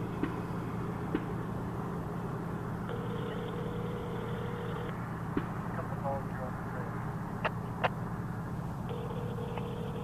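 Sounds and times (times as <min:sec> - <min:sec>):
idling vehicle hum: 0:00.0 - 0:10.0
phone ringing tone: 0:02.9 - 0:04.9, 0:08.9 - 0:10.0.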